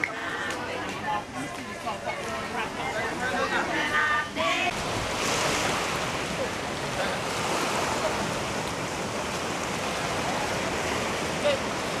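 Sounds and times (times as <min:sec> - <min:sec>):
surf washing on beach: 0:01.7 - 0:12.0.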